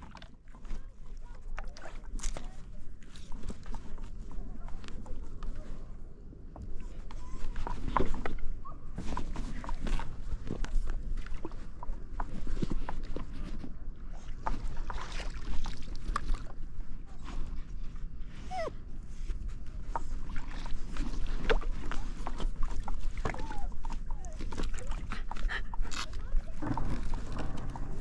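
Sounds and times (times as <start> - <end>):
steady low rumble: 8.3 - 28.0.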